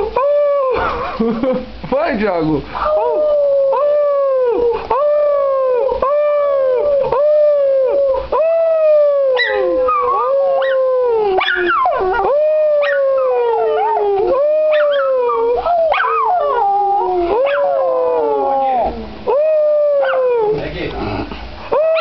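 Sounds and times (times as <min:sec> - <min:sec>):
dog howling: 0:02.8 - 0:20.6, 0:21.7 - 0:22.0
dog yelping: 0:09.3 - 0:19.0, 0:20.0 - 0:20.5.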